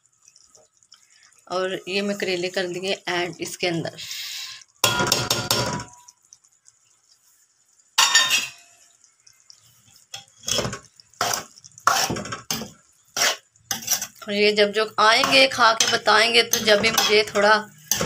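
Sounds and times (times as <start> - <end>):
spoon clank on pot: 4.8 - 6.0, 8.0 - 8.8
metal spoon scraping metal pot: 9.8 - 14.3, 15.1 - 18.0.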